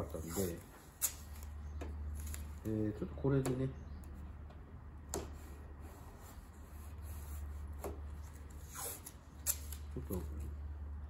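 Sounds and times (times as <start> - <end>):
paper rubbing on metal panel: 0.0 - 1.4.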